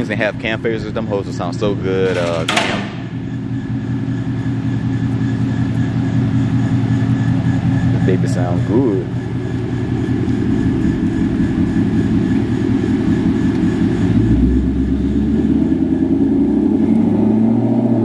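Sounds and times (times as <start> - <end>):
car engine rumbling past: 13.8 - 18.0.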